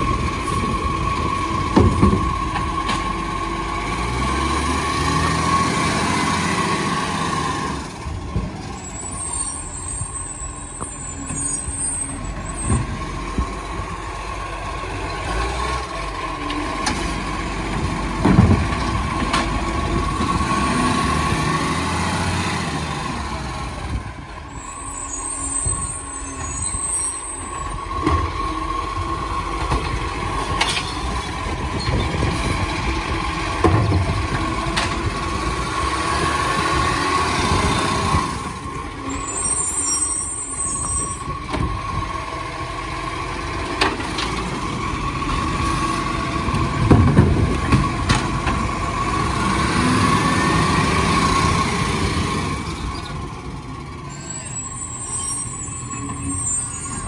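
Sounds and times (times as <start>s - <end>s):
garbage truck engine revving: 0.0s - 57.0s
bins knocking against truck: 46.8s - 48.5s.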